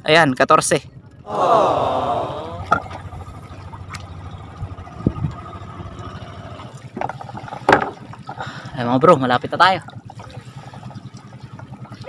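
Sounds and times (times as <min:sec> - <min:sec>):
low steady hum: 0:00.0 - 0:12.0
sharp splashes: 0:01.5 - 0:08.8, 0:09.4 - 0:12.0
water splashing and dripping: 0:02.6 - 0:08.4, 0:09.6 - 0:12.0.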